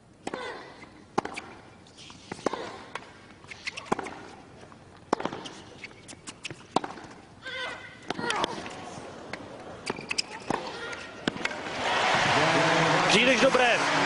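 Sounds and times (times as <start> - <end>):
racket striking tennis ball: 0.2 - 4.4, 5.1 - 7.2, 9.8 - 11.6
tennis ball bouncing: 1.1 - 7.3, 8.0 - 11.6.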